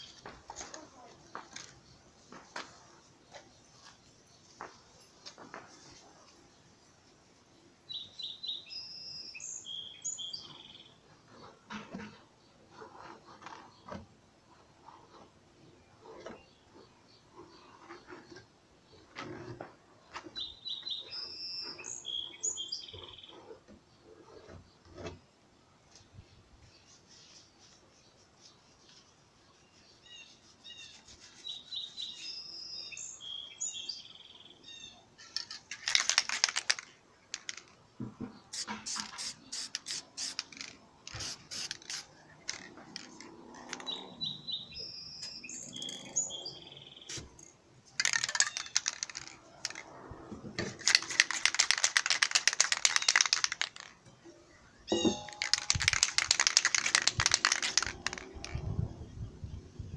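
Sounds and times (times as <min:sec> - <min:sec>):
birds chirping: 0:29.9 - 0:59.4
spray can ball rattling: 0:35.2 - 0:37.8, 0:38.5 - 0:44.0, 0:47.1 - 0:49.9, 0:50.6 - 0:54.0, 0:54.9 - 0:58.7
spray paint hissing: 0:38.5 - 0:42.7, 0:55.1 - 0:58.3.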